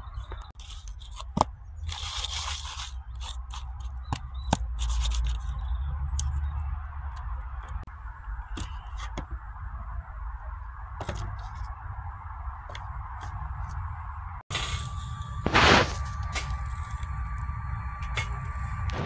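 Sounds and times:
low steady rumble: 4.7s - 19.0s.

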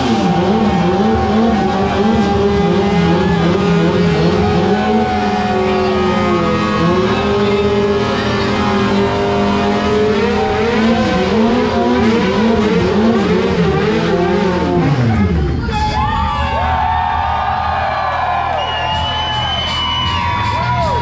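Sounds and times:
motorcycle engine revving: 0.0s - 15.6s.

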